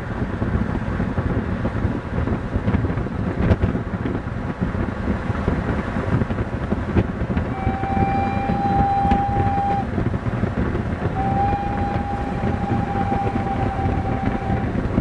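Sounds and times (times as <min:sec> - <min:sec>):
passing train rumble: 0:00.0 - 0:15.0
steam whistle blast: 0:07.5 - 0:09.9, 0:11.1 - 0:14.8.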